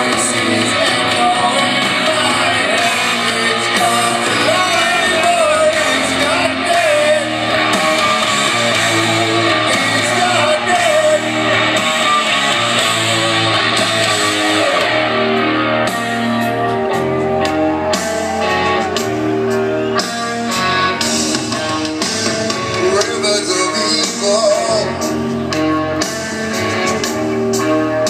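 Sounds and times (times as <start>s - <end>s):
person singing: 0.0s - 11.6s, 16.1s - 25.8s
live heavy metal band: 0.0s - 28.0s.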